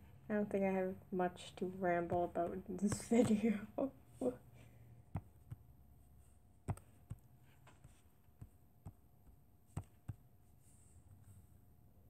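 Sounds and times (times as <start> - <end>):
taps on touchscreen: 5.1 - 5.7, 6.6 - 10.3.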